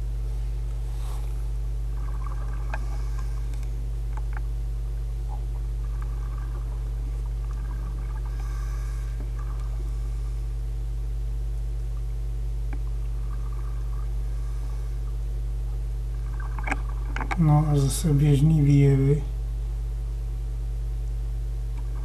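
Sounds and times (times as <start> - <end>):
low electrical hum: 0.0 - 22.0
faint ticks: 2.1 - 4.5, 5.2 - 9.9, 12.7 - 14.1.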